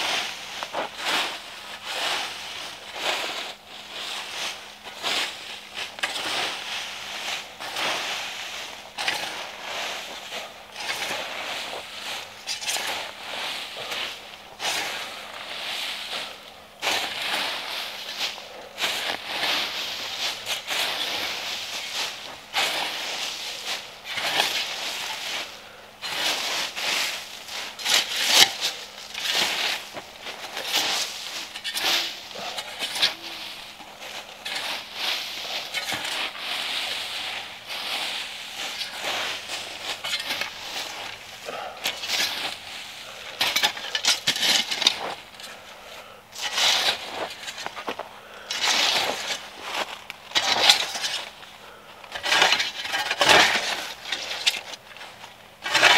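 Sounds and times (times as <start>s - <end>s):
dry leaves and twigs crunching: 0.0s - 55.9s.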